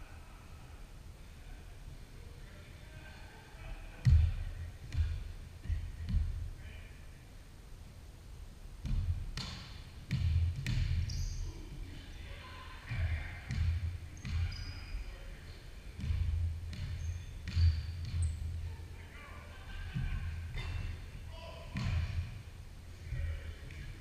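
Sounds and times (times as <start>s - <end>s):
basketball bouncing on wood floor: 4.0s - 6.4s, 8.8s - 11.2s, 16.0s - 18.5s, 21.8s - 22.3s
sneakers squeaking: 8.8s - 11.8s, 12.9s - 18.9s.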